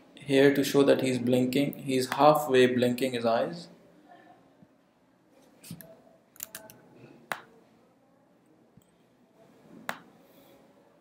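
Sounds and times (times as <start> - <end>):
computer mouse clicks: 5.6 - 7.5.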